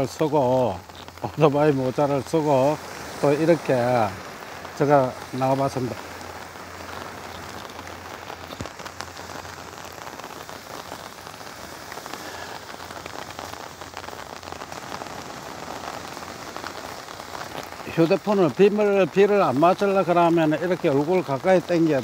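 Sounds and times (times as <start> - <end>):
rain on an umbrella: 0.0 - 22.0
single raindrop hits: 0.8 - 20.1.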